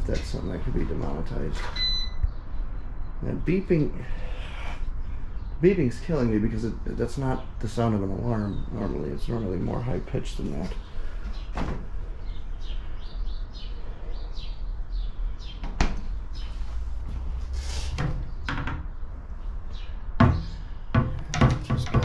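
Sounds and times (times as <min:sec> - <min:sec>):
short electronic beeps: 0:01.7 - 0:02.2
knocks and thuds: 0:18.0 - 0:18.9, 0:20.2 - 0:22.0.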